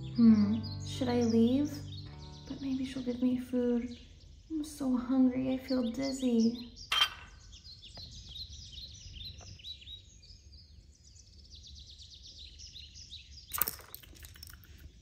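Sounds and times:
small birds chirping: 0.0s - 15.0s
sharp clicks: 13.5s - 14.8s.

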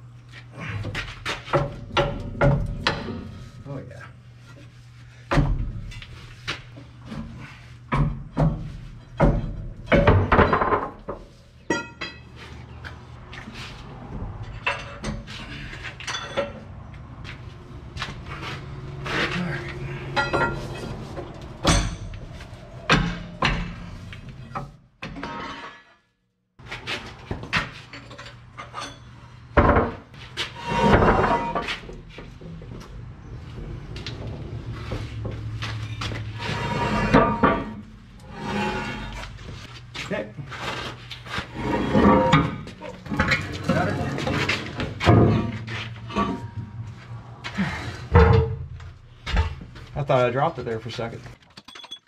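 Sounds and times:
metal knocks and clanks: 0.8s - 3.6s, 7.0s - 12.4s, 14.1s - 16.7s, 17.9s - 25.9s, 27.2s - 39.4s, 41.8s - 47.0s, 48.0s - 50.0s.

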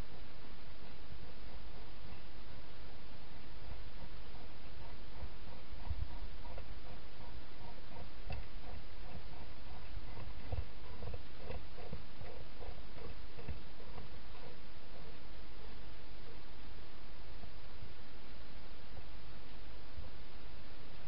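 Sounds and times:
hedgehog chewing clicks: 4.8s - 14.6s.

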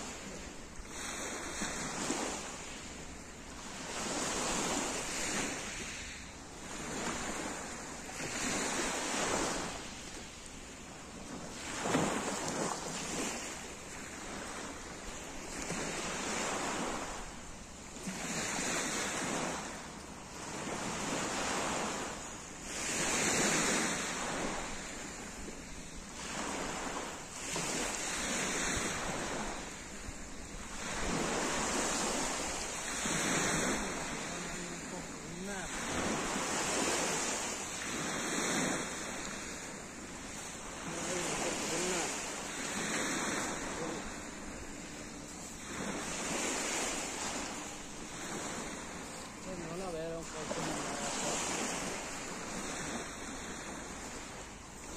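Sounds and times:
waves washing over pebbles: 20.4s - 54.9s.

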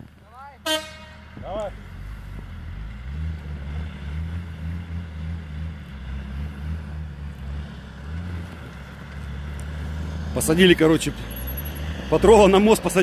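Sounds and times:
vehicle engines under load: 0.0s - 13.0s.

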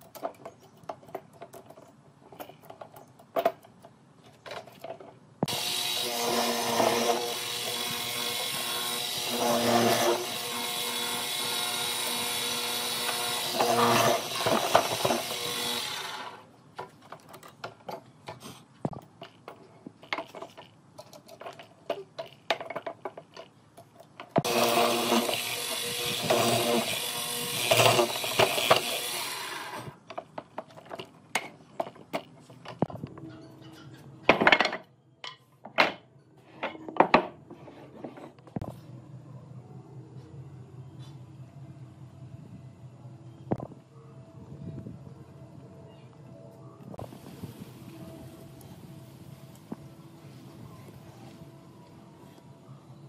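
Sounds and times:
mortiser motor running: 5.5s - 16.4s, 24.4s - 30.0s
handling clicks and knocks: 16.8s - 24.5s, 30.0s - 33.3s.

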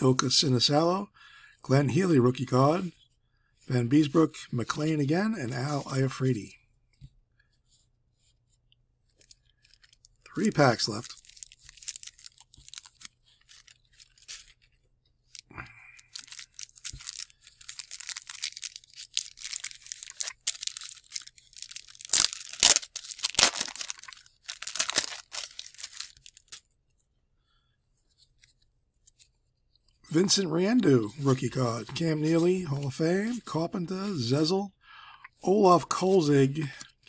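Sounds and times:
wrapper crinkling and tearing: 9.2s - 26.7s.

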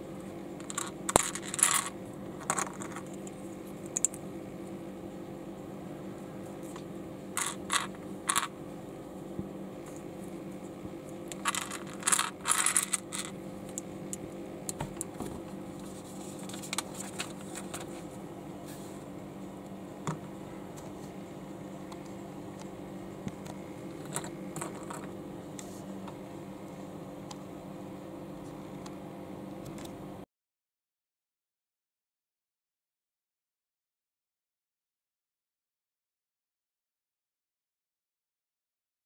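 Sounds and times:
steady low hum: 0.0s - 30.2s
plastic bricks clicking: 7.4s - 8.5s.

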